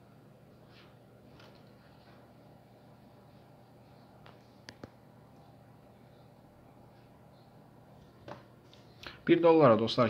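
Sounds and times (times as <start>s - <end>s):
faint room hiss: 0.0s - 10.0s.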